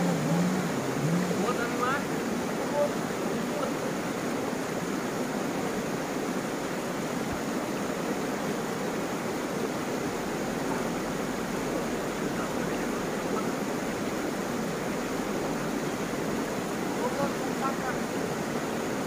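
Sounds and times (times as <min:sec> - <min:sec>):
river water rushing over rocks: 0:00.0 - 0:19.0.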